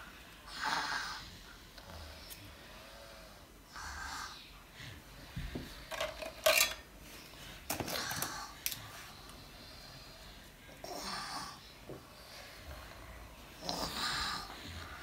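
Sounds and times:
pens rattling in metal tin: 0:05.9 - 0:06.8.

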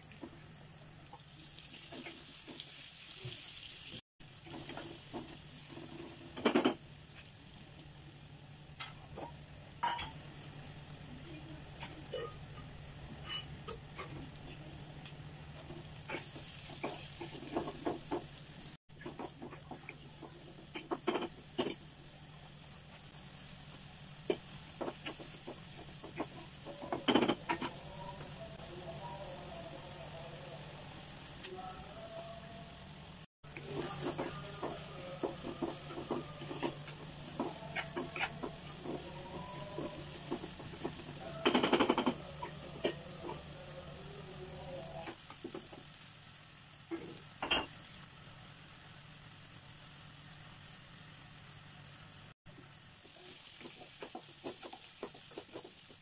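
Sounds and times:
onions sizzling in oil: 0:00.0 - 0:56.0
wooden spatula scraping a pan: 0:16.0 - 0:18.2.

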